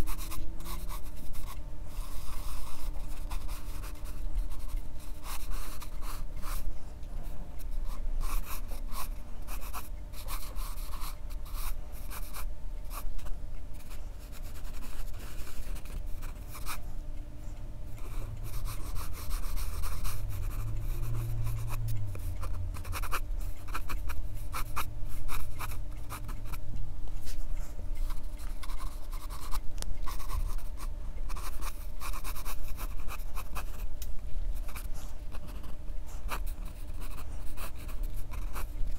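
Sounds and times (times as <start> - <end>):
pencil scratching on paper: 0.0 - 6.7, 7.6 - 13.1, 13.8 - 16.8, 18.0 - 26.6, 27.3 - 33.9, 34.6 - 38.7
faint steady hum: 0.0 - 38.9.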